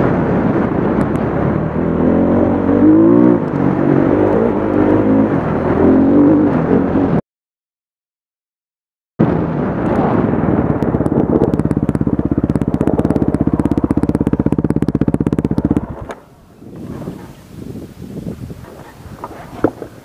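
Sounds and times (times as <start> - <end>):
faint wind noise: 0.0 - 7.2, 9.2 - 20.0
dirt bike engine chugging: 10.3 - 16.1.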